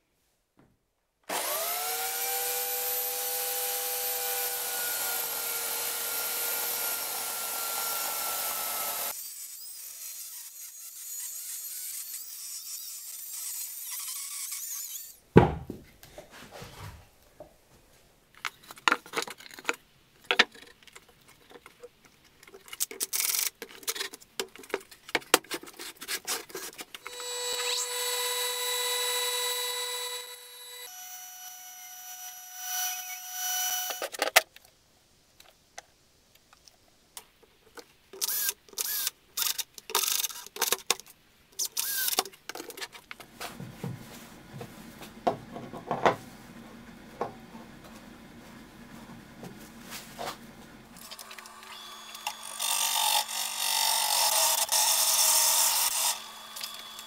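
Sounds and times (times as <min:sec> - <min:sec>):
bandsaw motor humming: 0:01.3 - 0:09.1, 0:51.0 - 0:57.0
electric chainsaw cutting log: 0:01.3 - 0:15.2, 0:27.0 - 0:34.0, 0:51.0 - 0:57.0
sharp knock: 0:15.4 - 0:15.8.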